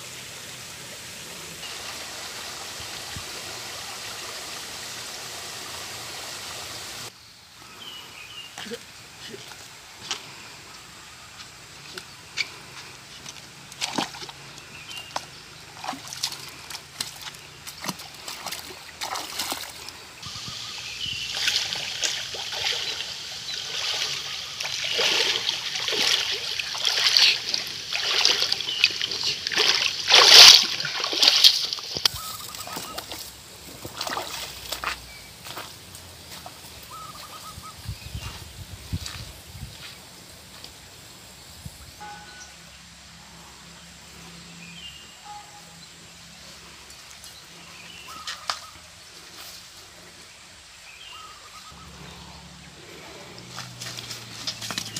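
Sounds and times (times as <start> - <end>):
footsteps wading through stream: 8.6 - 40.9, 46.7 - 50.8, 52.8 - 54.9.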